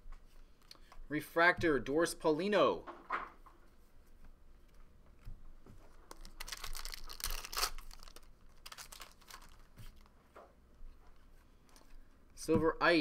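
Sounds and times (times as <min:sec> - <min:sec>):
card pack wrapper crinkling: 0:06.0 - 0:10.1.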